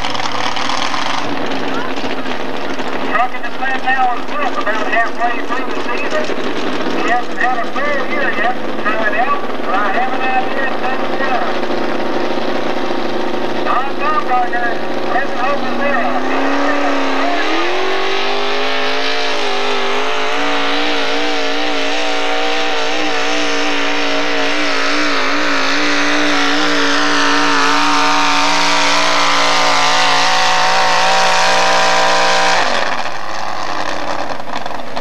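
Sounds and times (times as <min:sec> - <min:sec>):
truck engine at full throttle: 0:00.0 - 0:35.0.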